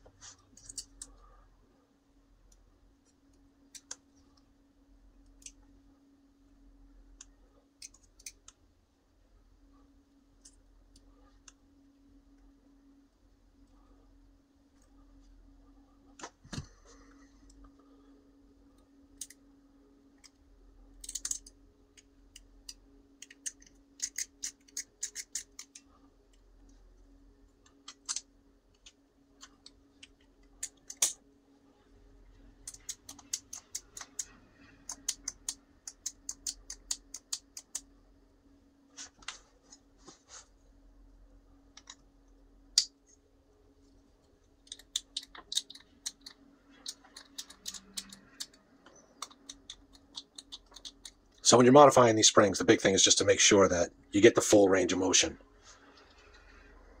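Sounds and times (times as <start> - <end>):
faint low hum: 0.0 - 57.0
spring and plastic parts clicking: 21.0 - 25.8.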